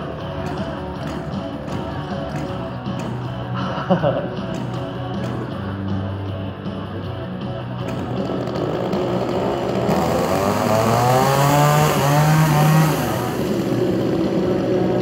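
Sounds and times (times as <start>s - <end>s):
chainsaw revving: 0.0s - 5.7s, 7.8s - 15.0s
chainsaw engines running: 0.0s - 15.0s.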